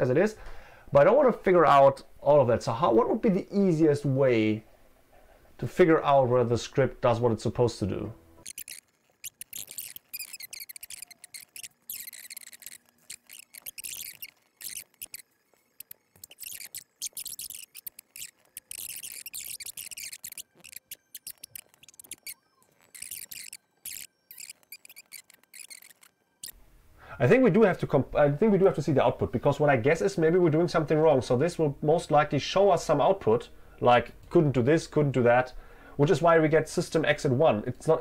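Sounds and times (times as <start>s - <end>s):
computer keyboard typing: 8.4s - 26.5s.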